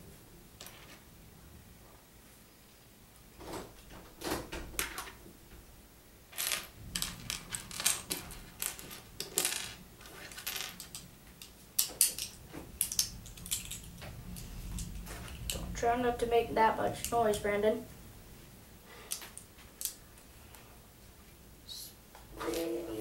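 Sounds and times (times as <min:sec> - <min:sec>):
plastic bricks clicking and clattering: 0:06.4 - 0:15.7.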